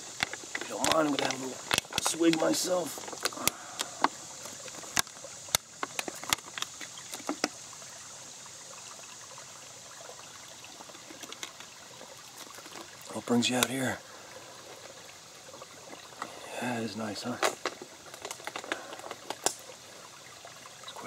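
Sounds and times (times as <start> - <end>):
sharp clicks and knocks: 0.0 - 7.6
trickling stream: 0.0 - 21.0.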